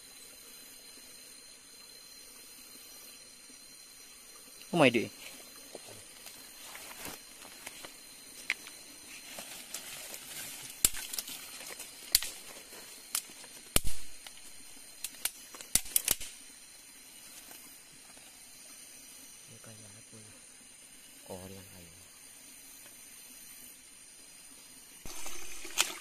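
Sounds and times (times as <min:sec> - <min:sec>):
faint steady hiss: 0:00.0 - 0:26.0
sharp clicks and snaps: 0:15.0 - 0:16.4.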